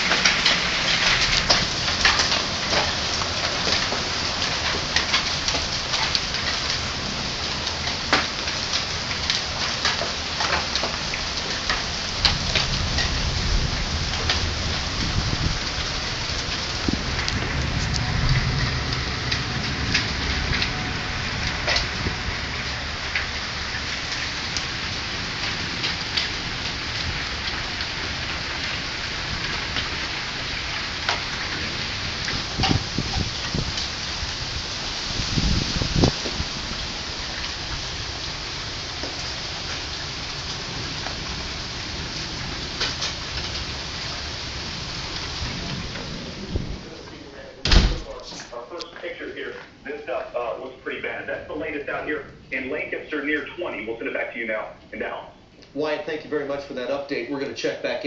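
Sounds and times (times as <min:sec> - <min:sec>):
hail storm hiss: 0:00.0 - 0:54.4
hailstones clicking: 0:00.0 - 0:55.8
deep rumble: 0:11.7 - 0:28.8, 0:43.3 - 0:48.6.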